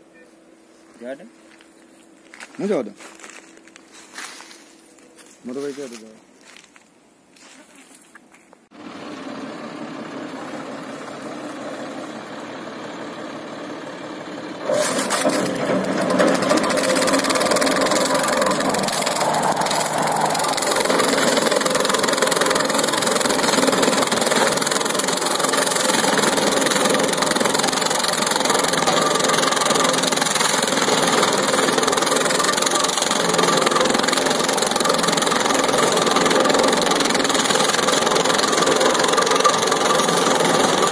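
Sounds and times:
tractor engine running: 0:08.7 - 0:40.9
rotary cutter chopping stems: 0:14.6 - 0:40.9.

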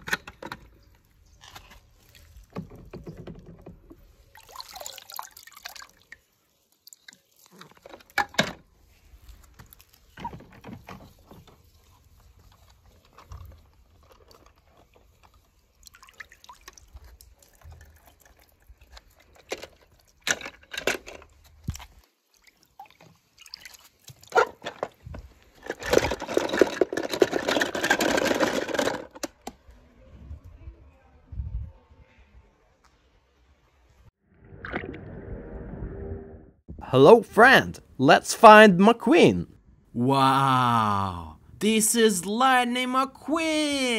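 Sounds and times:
water splashing and dripping: 0:04.2 - 0:07.9, 0:15.0 - 0:20.2, 0:21.5 - 0:24.4
plastic toys clicking and knocking: 0:19.3 - 0:21.3, 0:25.6 - 0:29.6.

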